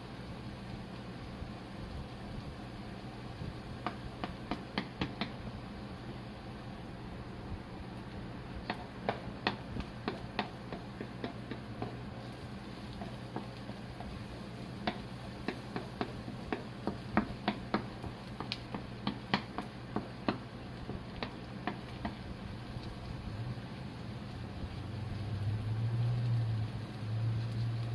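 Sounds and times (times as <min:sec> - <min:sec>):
spatula scraping frying pan: 0:08.7 - 0:20.1.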